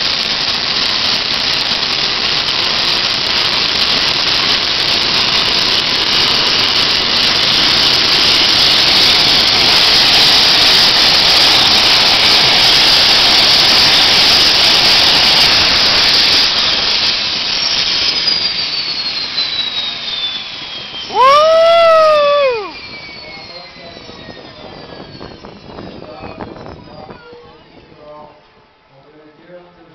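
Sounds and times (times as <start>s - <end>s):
whine falling in pitch: 0.0s - 28.1s
turboprop engine roar: 0.0s - 29.9s
loud brief tone: 22.6s - 28.2s.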